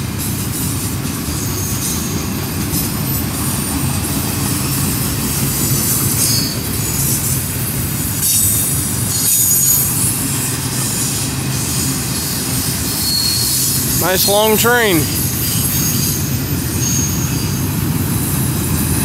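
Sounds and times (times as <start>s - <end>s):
train wheels rumbling on rails: 0.0s - 19.0s
high-pitched wheel squeal: 12.9s - 13.8s.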